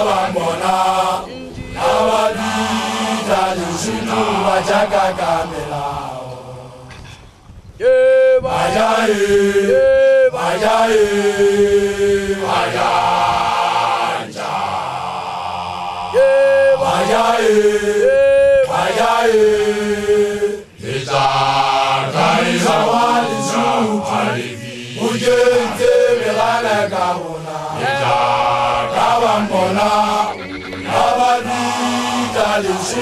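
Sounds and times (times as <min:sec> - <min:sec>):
group of voices chanting: 0:00.0 - 0:06.9, 0:07.8 - 0:33.0
person's high held calls: 0:07.8 - 0:08.4, 0:16.2 - 0:16.9, 0:22.6 - 0:24.8, 0:27.8 - 0:32.4.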